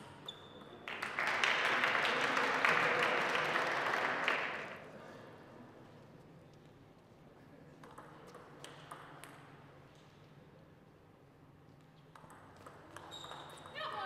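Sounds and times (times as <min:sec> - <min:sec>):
table tennis ball clicks: 0:12.1 - 0:13.7.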